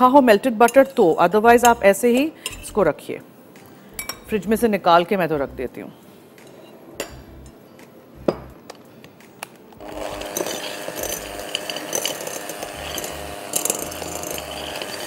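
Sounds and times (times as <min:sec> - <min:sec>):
electric hand mixer running: 0:09.8 - 0:15.0.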